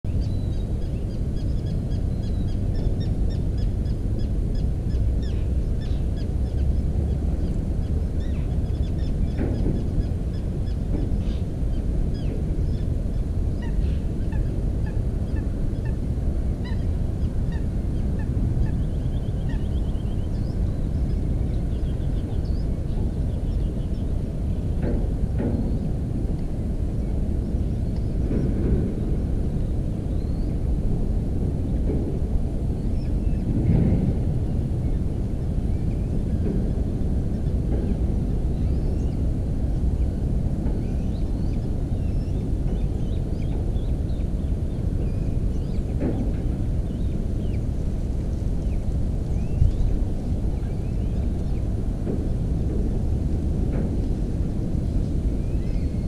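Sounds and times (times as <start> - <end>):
wind rumble on microphone: 0.0 - 56.0
birds chirping: 0.1 - 26.0.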